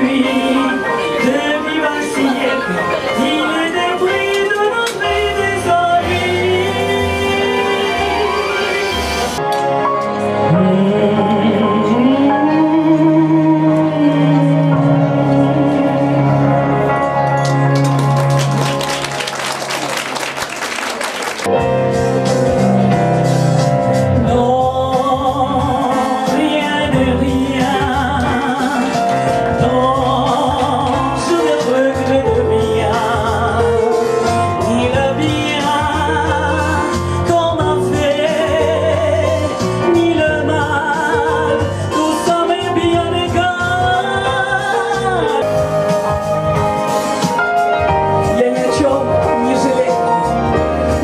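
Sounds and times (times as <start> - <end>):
woman singing with vibrato: 0.0 - 9.4, 10.5 - 16.9, 24.2 - 46.8, 48.2 - 50.4
electronic keyboard: 0.0 - 51.0.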